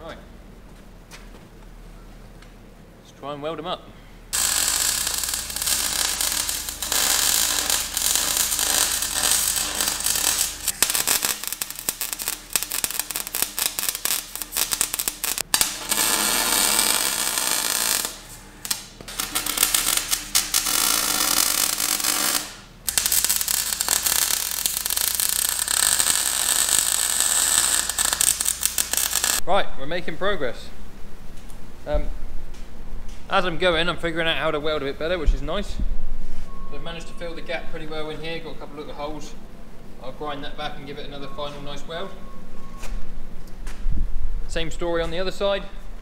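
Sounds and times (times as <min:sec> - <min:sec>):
arc welding crackling sizzle: 0:04.3 - 0:29.4.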